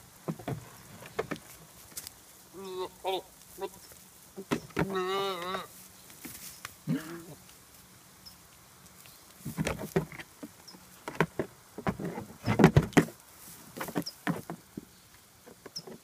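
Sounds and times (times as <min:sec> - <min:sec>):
knocks and thumps: 0:00.2 - 0:01.5, 0:09.4 - 0:13.2, 0:13.8 - 0:14.9.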